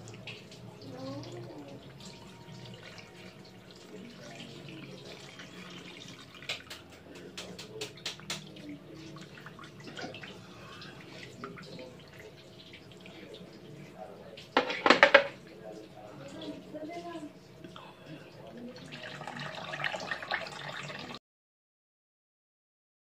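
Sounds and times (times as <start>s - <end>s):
milk pouring into a pan: 1.2s - 7.1s, 18.6s - 21.2s.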